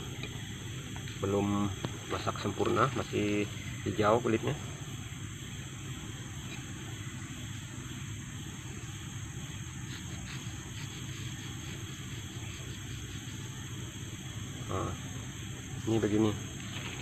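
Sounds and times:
forest insects droning: 0:00.0 - 0:17.0.

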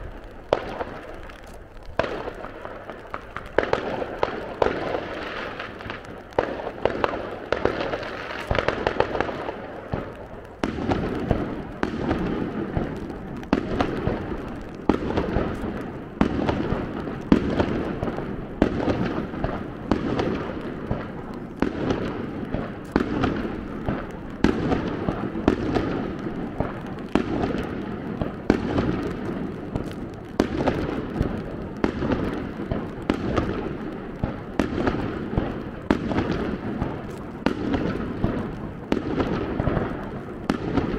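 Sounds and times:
fireworks bursting: 0:00.0 - 0:40.9
fireworks crackle: 0:00.0 - 0:40.9.

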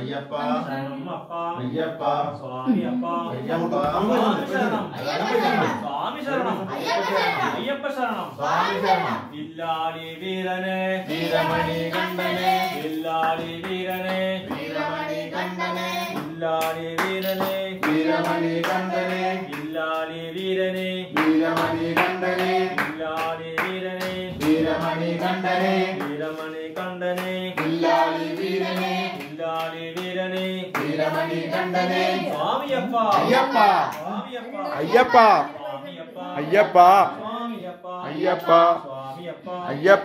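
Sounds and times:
devotional singing: 0:00.0 - 0:40.0
rhythmic hand claps: 0:10.6 - 0:35.4.

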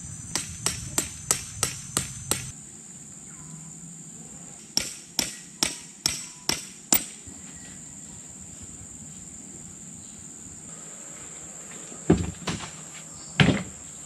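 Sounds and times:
hammer blows on tent stake: 0:00.3 - 0:02.5, 0:04.8 - 0:07.2.

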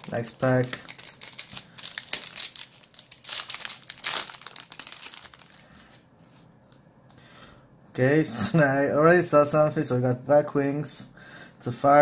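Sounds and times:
foil wrapper crinkling: 0:00.0 - 0:06.0.

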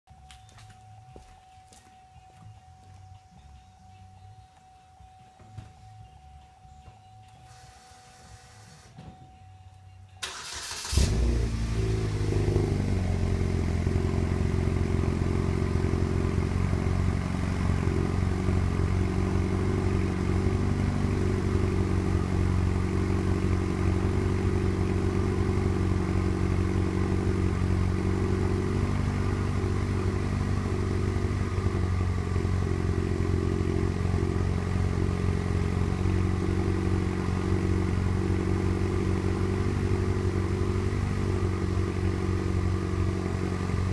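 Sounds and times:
car engine idling: 0:10.1 - 0:43.9
engine cranking: 0:10.2 - 0:11.4.

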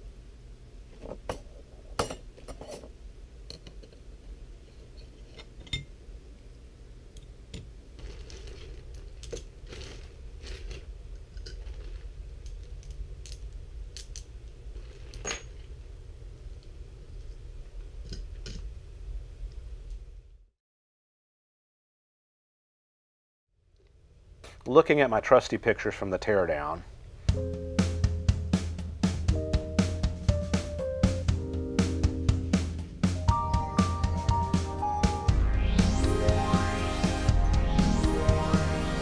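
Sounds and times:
plastic bag crinkling: 0:08.0 - 0:10.9
steady low hum: 0:24.0 - 0:39.0.

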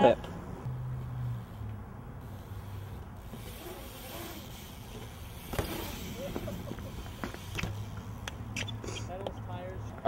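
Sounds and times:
bike tyres rolling on concrete: 0:00.7 - 0:10.0
bike knocking and clicking: 0:03.3 - 0:10.0.

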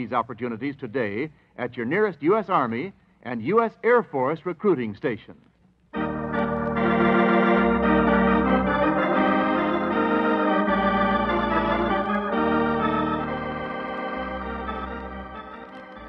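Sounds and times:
organ chords: 0:05.9 - 0:16.0.

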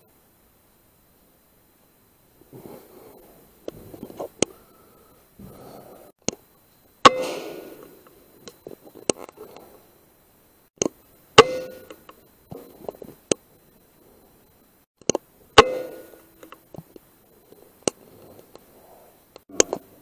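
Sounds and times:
air rifle shots: 0:07.0 - 0:07.9.

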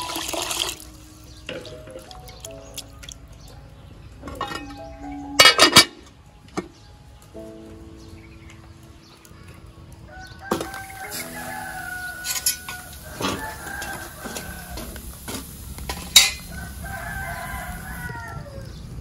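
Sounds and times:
metal cookware clanking: 0:04.2 - 0:06.1, 0:12.1 - 0:14.9, 0:15.8 - 0:16.5
rooster crowing: 0:10.1 - 0:15.2, 0:16.4 - 0:18.8.

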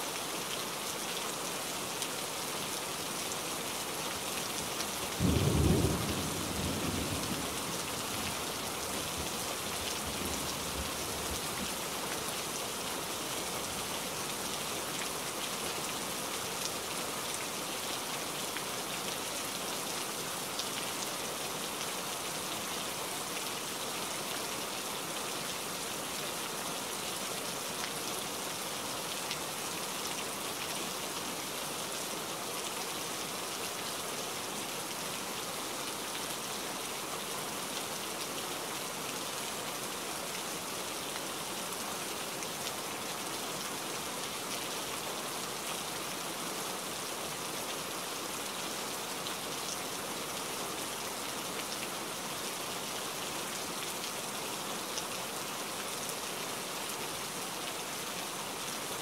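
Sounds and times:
rain falling on foliage: 0:00.0 - 0:59.0
low rumble of thunder: 0:05.2 - 0:07.8.

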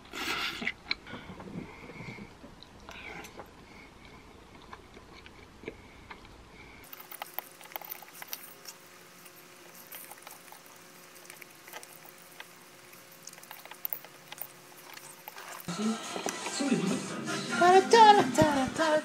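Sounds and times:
small mouth sounds: 0:06.9 - 0:15.7.

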